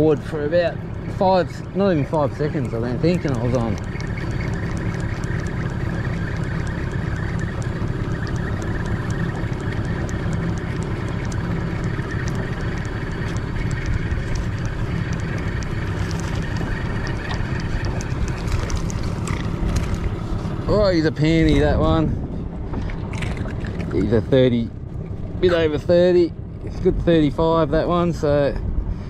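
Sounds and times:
light ticking: 0.0 - 22.0
boat motor running: 0.0 - 29.0.

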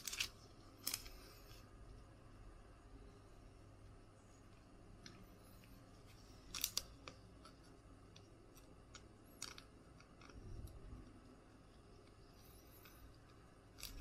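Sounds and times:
plastic sleeve crinkling: 0.0 - 1.5, 6.2 - 7.2.

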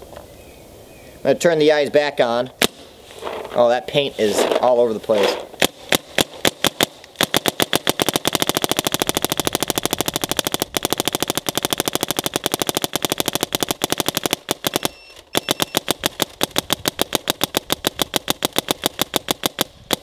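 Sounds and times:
paintball marker firing sharp pops: 2.6 - 2.9, 5.6 - 20.0.

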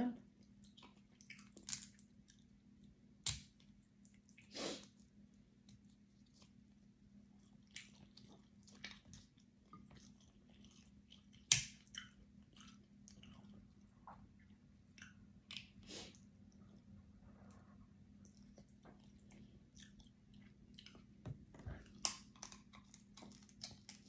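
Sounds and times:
close-up chewing: 0.4 - 3.0, 3.6 - 24.0
crab shell clicking and cracking: 1.3 - 2.5, 3.2 - 3.7, 11.3 - 12.2, 21.9 - 24.0.

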